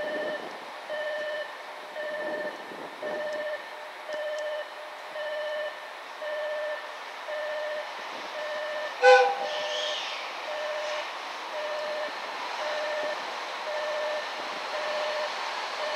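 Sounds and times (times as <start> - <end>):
train horn blast: 9.0 - 9.7.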